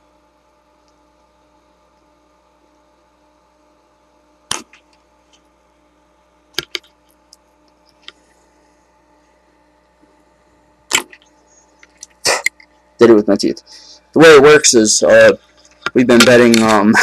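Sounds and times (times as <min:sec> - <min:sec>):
faint electrical hum: 0:00.0 - 0:17.0
wire insulation clicking and snapping: 0:04.5 - 0:05.5, 0:06.5 - 0:08.2, 0:15.5 - 0:16.9.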